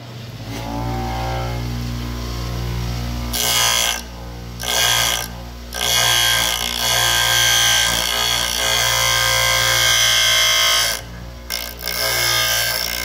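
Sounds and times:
bench grinder motor hum: 0.3s - 13.0s
grinding wheel on drill bit: 3.3s - 13.0s.

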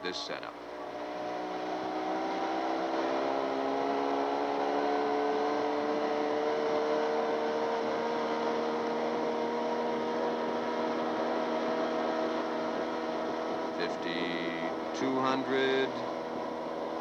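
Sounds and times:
outboard motor at full throttle: 0.0s - 17.0s.

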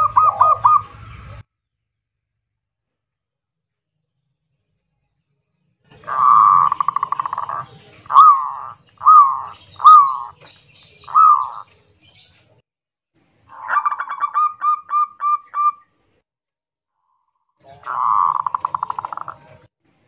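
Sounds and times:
dove cooing: 0.0s - 1.4s, 6.0s - 11.8s, 17.6s - 19.7s.

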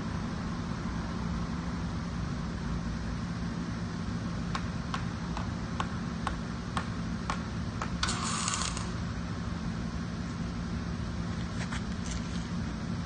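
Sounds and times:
welding arc crackling: 7.9s - 9.0s.

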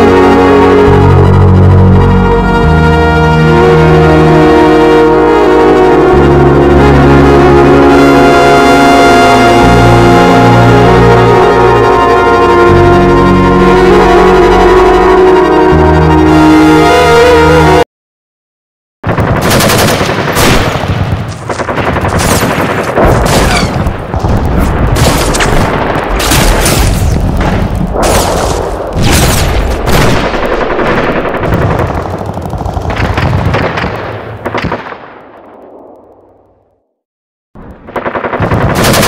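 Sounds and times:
organ music: 0.0s - 17.8s
machine-gun fire: 19.0s - 36.4s, 37.8s - 39.0s
single gunshots: 19.4s - 23.8s, 24.6s - 30.6s.

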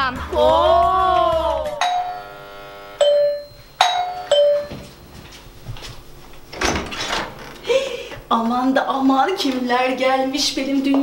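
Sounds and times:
two-tone doorbell chime: 1.8s - 4.9s.

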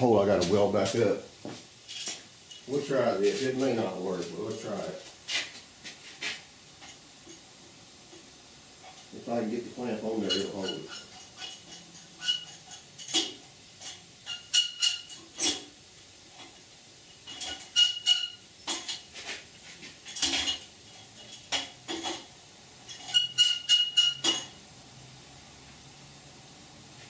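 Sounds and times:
steel parts clanking: 10.0s - 15.7s, 17.2s - 19.3s, 20.0s - 22.3s, 22.9s - 24.6s.

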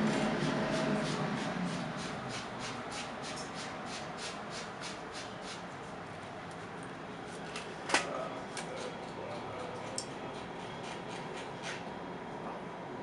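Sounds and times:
train interior hiss: 0.0s - 5.9s.

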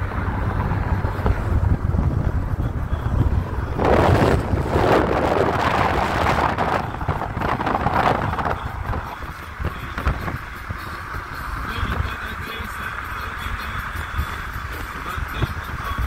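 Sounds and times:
tyres rumbling on road: 0.0s - 16.0s
wind buffeting microphone: 0.0s - 16.0s.

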